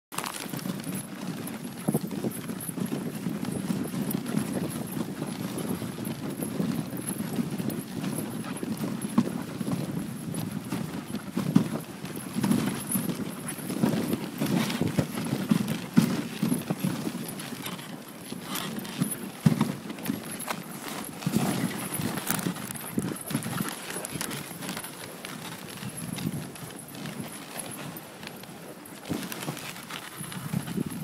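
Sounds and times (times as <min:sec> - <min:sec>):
sled rumbling over snow: 0:00.2 - 0:31.0.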